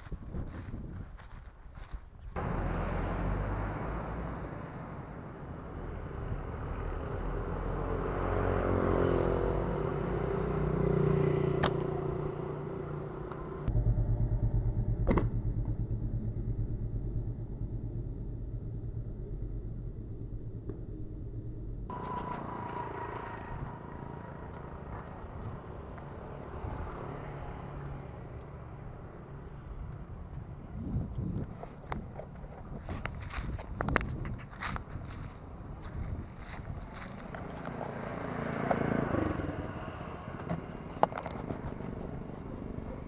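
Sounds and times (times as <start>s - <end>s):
vehicle passing: 2.4s - 30.8s, 35.0s - 43.0s
steady low rumble: 12.0s - 26.8s.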